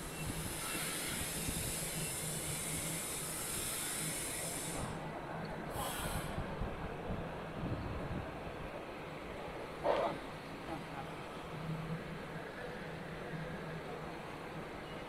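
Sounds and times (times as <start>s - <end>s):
steady high hiss: 0.0s - 6.6s.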